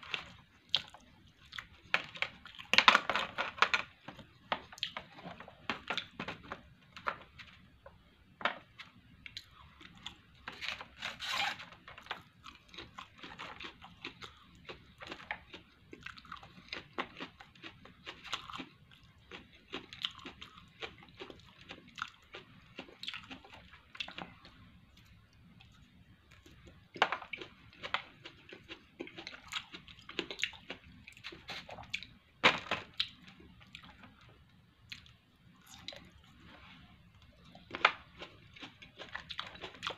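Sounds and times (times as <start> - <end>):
person chewing: 0.0 - 2.8, 12.2 - 24.4, 26.4 - 32.1, 37.3 - 39.9.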